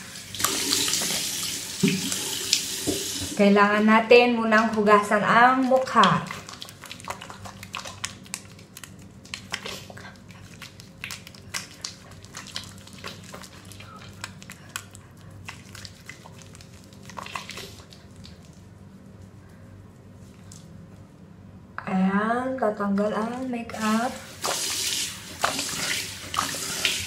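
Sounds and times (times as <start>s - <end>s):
soapy hands squelching on face: 0.0s - 2.8s, 4.5s - 19.1s, 24.2s - 27.0s
steady low hum: 3.3s - 24.4s.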